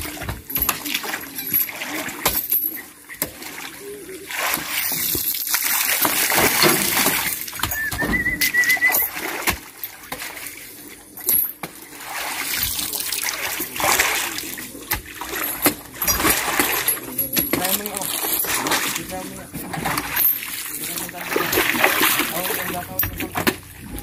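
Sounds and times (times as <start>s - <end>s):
high warbling call: 7.7s - 9.2s.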